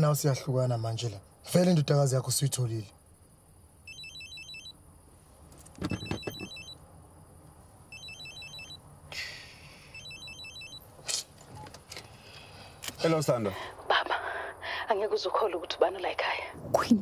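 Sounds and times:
phone ringing two-tone trill: 3.9s - 4.8s, 5.8s - 6.8s, 7.9s - 8.8s, 10.0s - 10.8s
knocks: 5.7s - 6.7s.

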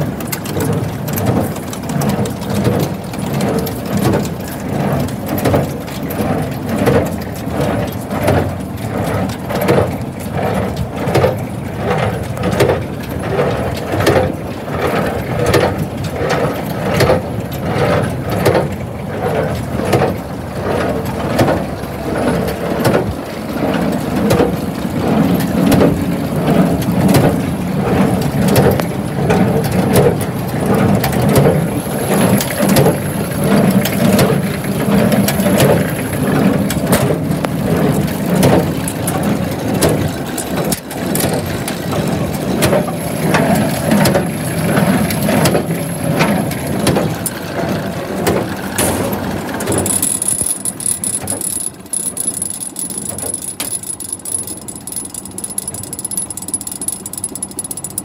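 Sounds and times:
tractor engine hum: 0.0s - 58.0s
baler mechanism knocking: 48.2s - 58.0s.

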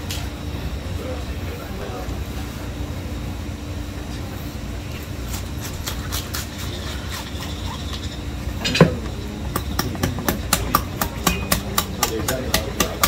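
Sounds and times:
steady low hum: 0.0s - 13.0s
knife clicking and scraping on bone: 5.3s - 8.2s, 9.5s - 13.0s.

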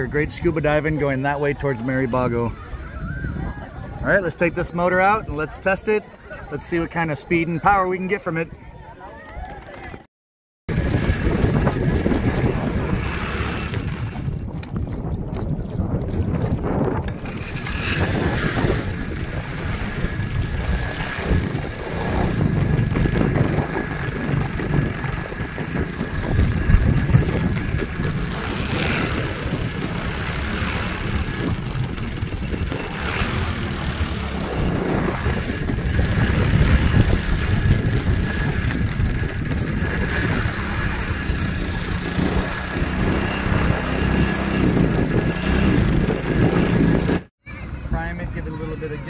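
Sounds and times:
wind buffeting microphone: 0.0s - 10.0s, 10.7s - 49.0s
small boat motor running: 10.7s - 47.3s.

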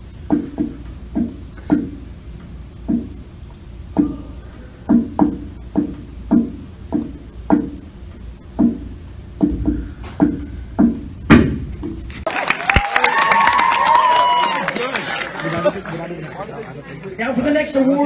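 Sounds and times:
hands knocking on wooden lectern: 2.9s - 3.1s, 4.9s - 7.8s, 8.6s - 8.8s.

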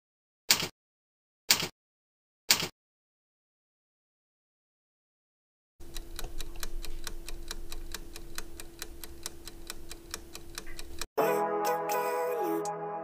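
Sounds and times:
clock ticking quickly: 5.8s - 11.1s.

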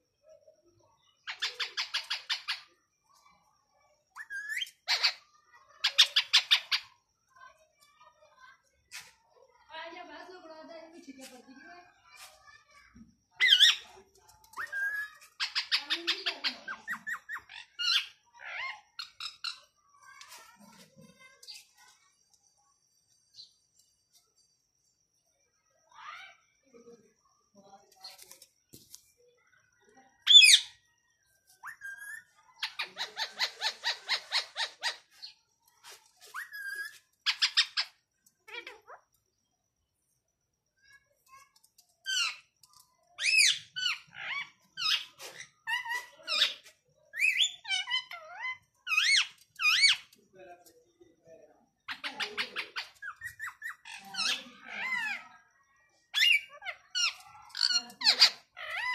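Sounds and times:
parakeet calling: 31.6s - 35.3s, 36.3s - 38.8s, 51.9s - 55.2s, 56.2s - 58.9s.

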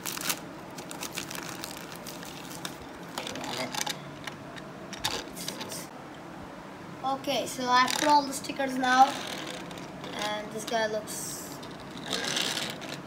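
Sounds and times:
plastic bag crinkling: 0.0s - 3.9s.

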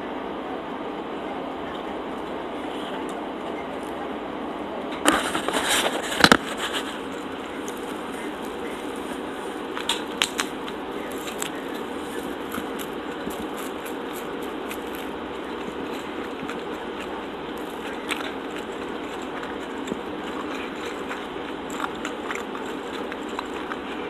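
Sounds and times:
soft chewing: 5.0s - 24.0s
sandwich crunching: 5.1s - 24.0s.

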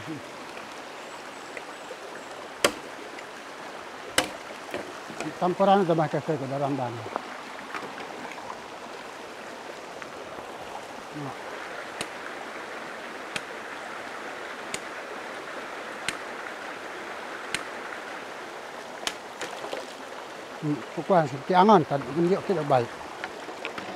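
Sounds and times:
stream rushing: 0.0s - 23.9s
machete chopping bamboo: 2.6s - 3.0s, 4.1s - 5.3s, 13.3s - 13.6s, 14.7s - 14.9s, 16.0s - 16.3s, 17.5s - 17.8s, 19.0s - 19.6s.

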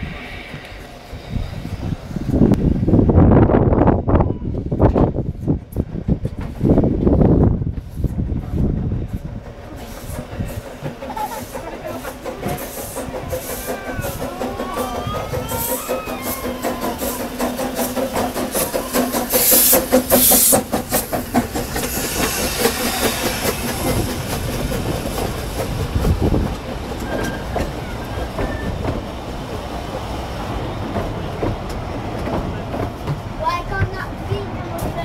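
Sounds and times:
loud hiss of steam: 0.0s - 3.0s, 9.0s - 31.4s
steam locomotive knocking: 0.0s - 35.0s
carriage wheels clickety-clack: 9.2s - 35.0s.

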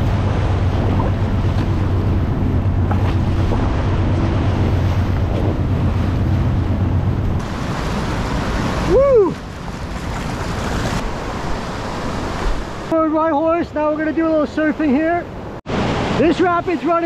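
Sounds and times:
wind buffeting microphone: 0.0s - 12.9s
whitewater rushing: 0.0s - 17.0s.

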